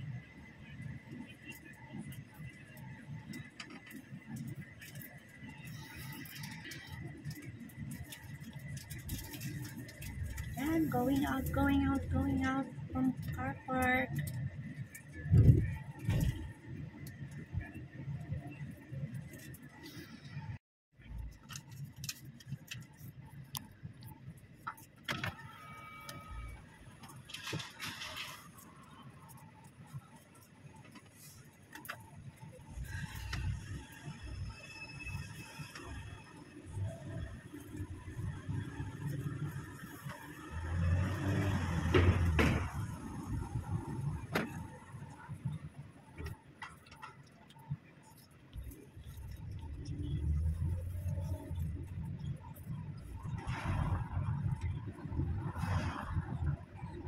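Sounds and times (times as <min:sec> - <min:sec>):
car engine hum: 0:35.4 - 0:57.0
low engine rumble: 0:47.3 - 0:57.0.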